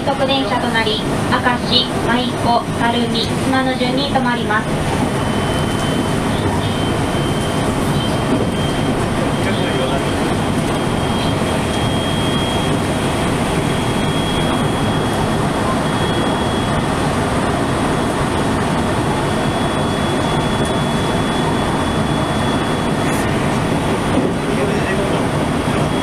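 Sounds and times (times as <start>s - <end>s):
train wheels rumbling on rails: 0.0s - 26.0s
faint high whine: 0.1s - 23.8s.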